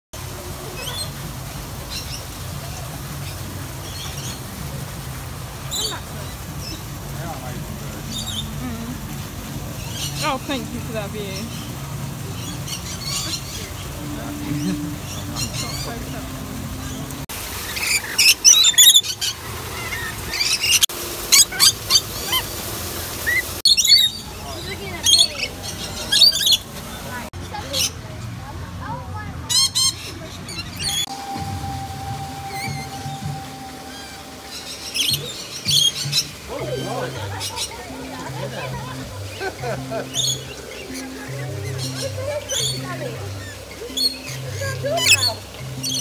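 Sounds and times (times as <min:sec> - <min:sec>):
parrots chirping: 0:11.4 - 0:22.5, 0:23.2 - 0:26.7, 0:40.1 - 0:46.0
parrots screeching: 0:17.7 - 0:22.5, 0:45.0 - 0:46.0.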